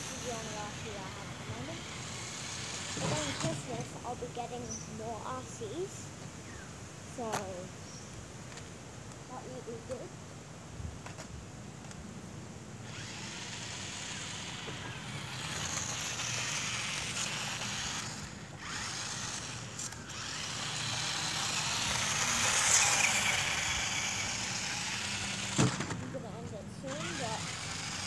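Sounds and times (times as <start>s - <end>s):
toy car motor whirring: 0.0s - 5.6s, 12.8s - 28.0s.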